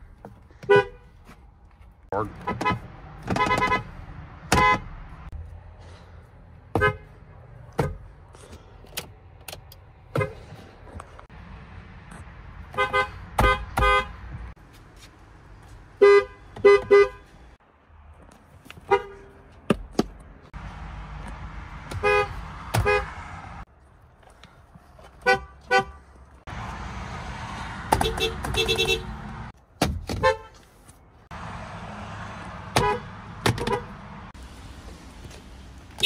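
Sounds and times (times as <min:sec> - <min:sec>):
car horns honking: 0:00.5 - 0:01.2, 0:02.2 - 0:05.0, 0:06.7 - 0:08.1, 0:12.6 - 0:14.4, 0:16.0 - 0:17.5, 0:18.8 - 0:19.4, 0:21.8 - 0:23.4, 0:25.2 - 0:26.1, 0:27.8 - 0:29.5, 0:30.1 - 0:30.6, 0:32.6 - 0:34.3.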